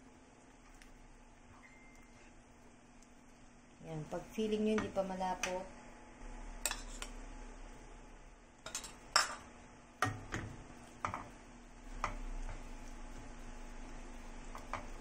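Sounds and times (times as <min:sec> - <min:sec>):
spoon stirring food in a wok: 0:08.7 - 0:15.0.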